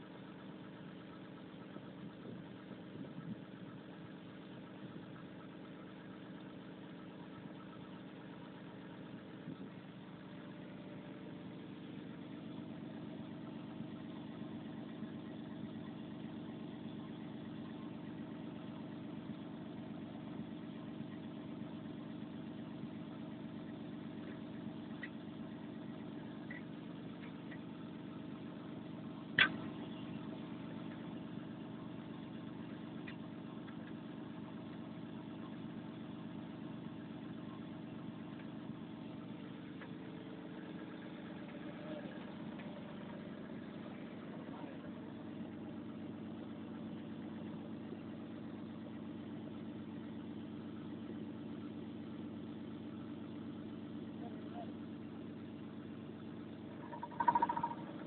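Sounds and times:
diesel engine idling: 0:00.0 - 0:58.0
sharp click: 0:29.4 - 0:29.6.

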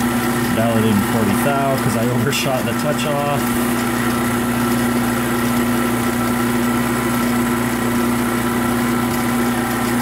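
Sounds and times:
lathe motor hum with gear whine: 0:00.0 - 0:10.0.

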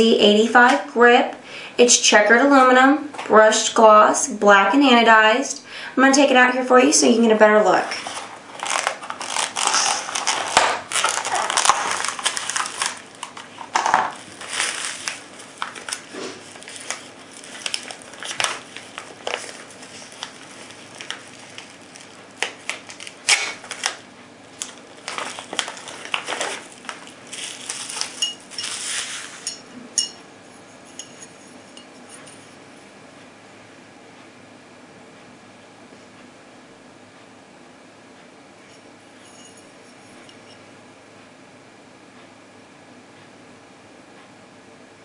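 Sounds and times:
plastic packaging crinkling: 0:07.8 - 0:29.6.

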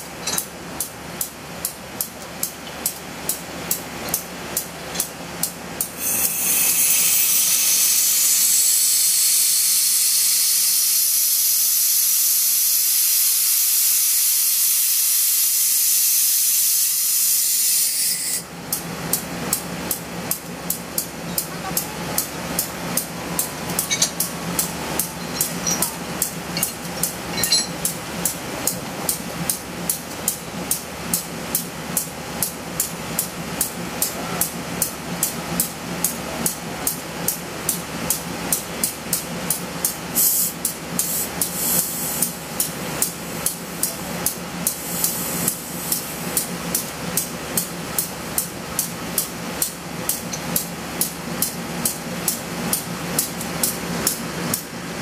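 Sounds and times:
diesel locomotive idling: 0:18.4 - 0:55.0.

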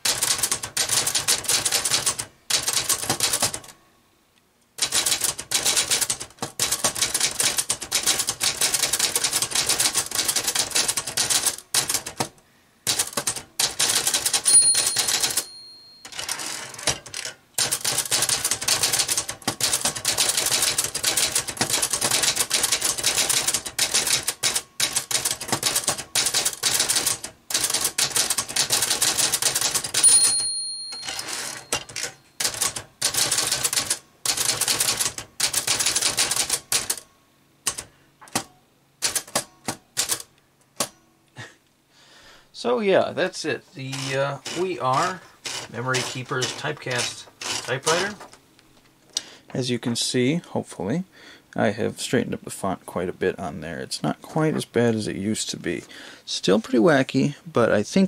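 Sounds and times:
typewriter keys clacking: 0:00.0 - 0:03.7, 0:04.8 - 0:12.3, 0:12.9 - 0:37.0, 0:37.7 - 0:40.9, 0:43.9 - 0:48.4
typewriter margin bell ding: 0:14.2 - 0:17.3, 0:29.9 - 0:32.8.

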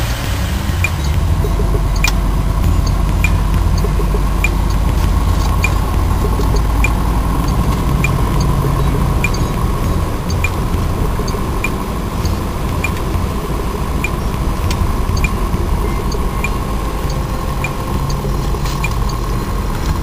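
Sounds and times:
car engine and road rumble: 0:00.0 - 0:20.0
light repeating tick: 0:00.8 - 0:20.0.

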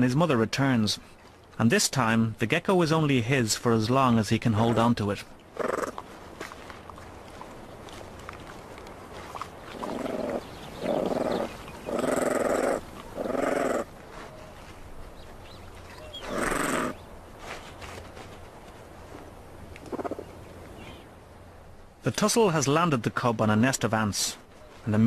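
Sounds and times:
animals growling: 0:05.6 - 0:06.0, 0:09.6 - 0:14.0, 0:16.1 - 0:17.0.

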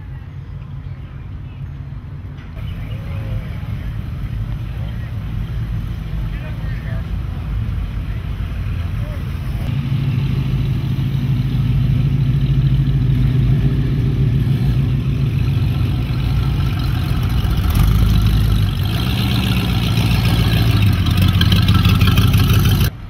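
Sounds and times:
hot rod engines: 0:00.0 - 0:23.0
engine revving: 0:08.5 - 0:22.9.

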